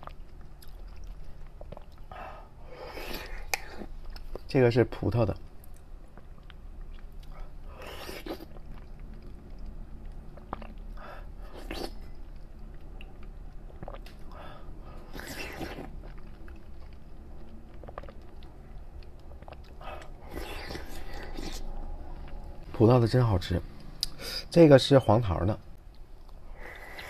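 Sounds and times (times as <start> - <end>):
wet chewing: 0.0 - 2.2, 5.3 - 22.5
steady low hum: 0.0 - 27.0.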